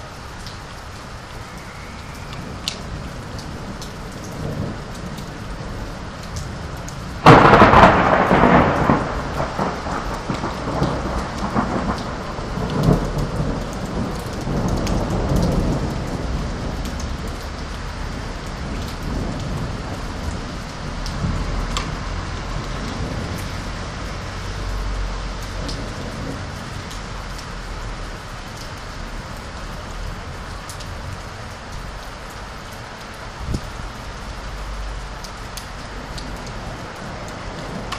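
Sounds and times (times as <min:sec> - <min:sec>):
rain hissing: 0:00.0 - 0:37.9
thunder rumbling: 0:01.6 - 0:32.3, 0:35.8 - 0:37.9.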